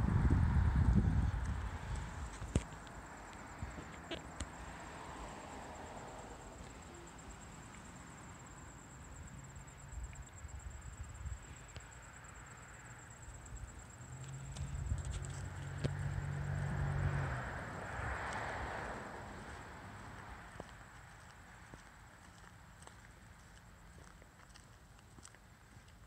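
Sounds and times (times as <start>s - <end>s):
high-pitched insect trill: 2.0s - 18.6s.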